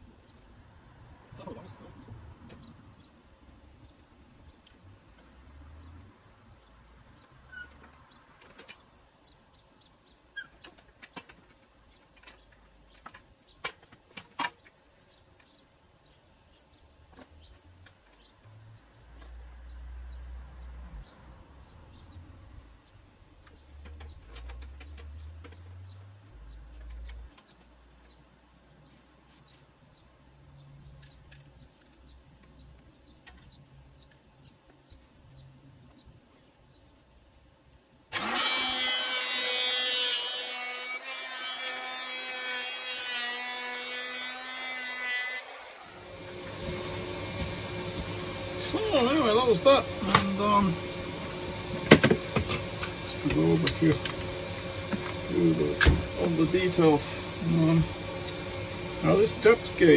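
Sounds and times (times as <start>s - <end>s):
small birds chirping: 1.4s - 38.1s.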